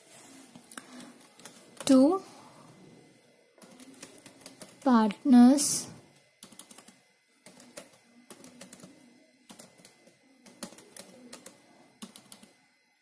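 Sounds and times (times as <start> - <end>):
keyboard typing clicks: 0.8 - 2.0, 6.4 - 8.9, 9.5 - 12.5.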